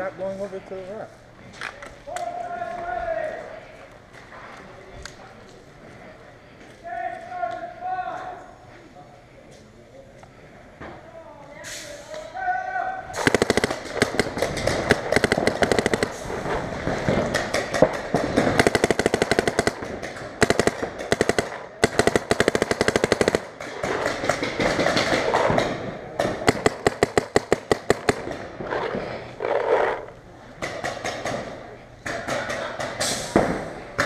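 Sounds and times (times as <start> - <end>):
paintball markers firing rapidly: 13.2 - 28.7.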